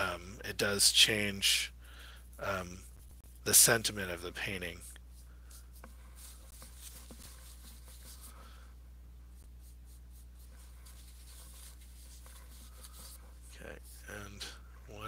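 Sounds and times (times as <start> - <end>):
steady low hum: 0.0 - 15.0
paintbrush scratchy strokes: 1.4 - 8.6, 9.3 - 15.0.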